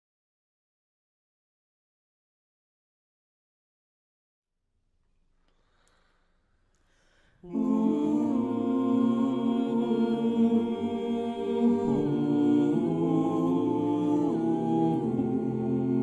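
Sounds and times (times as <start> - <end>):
choir singing a cappella: 7.4 - 16.0.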